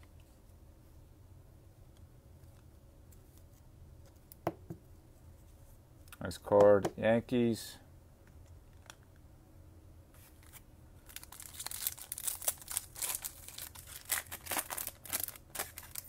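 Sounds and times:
foil wrapper tearing and crinkling: 11.0 - 16.0.

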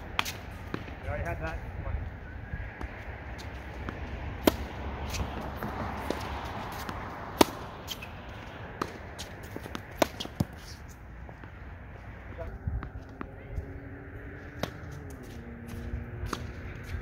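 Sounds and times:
tennis ball bouncing on court: 0.0 - 1.0, 2.8 - 11.6, 14.4 - 17.0
tennis ball hit with racket: 0.0 - 1.0, 2.8 - 11.6, 14.5 - 17.0.

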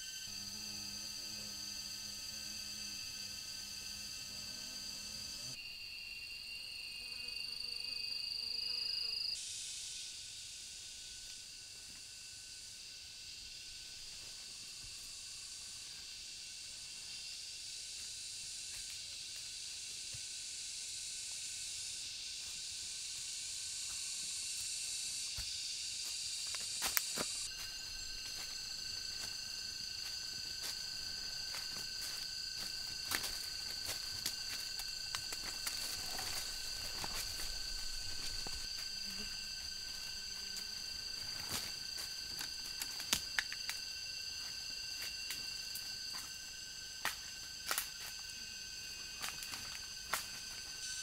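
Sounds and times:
insects chorus: 0.0 - 51.0
footsteps on dry leaf litter: 27.0 - 39.0.

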